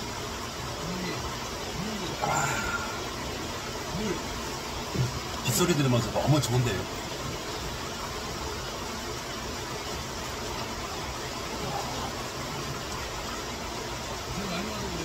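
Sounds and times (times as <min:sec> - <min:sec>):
flooding stream rushing: 0:00.0 - 0:15.0
heavy rain falling: 0:00.0 - 0:15.0.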